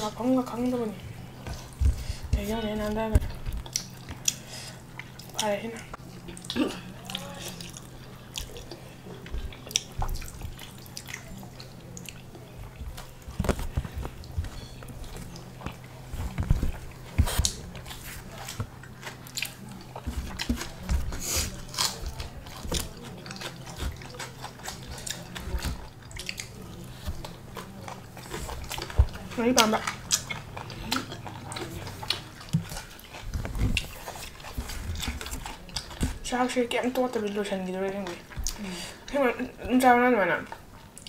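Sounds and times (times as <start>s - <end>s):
faint low hum: 0.0s - 41.0s
people chewing and biting food: 0.0s - 41.0s
sharp crunches and clicks: 7.1s - 38.6s.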